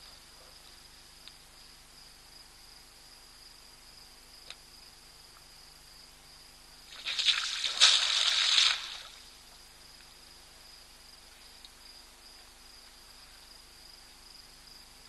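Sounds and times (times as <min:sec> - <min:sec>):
elephant spraying water: 0:06.9 - 0:09.2.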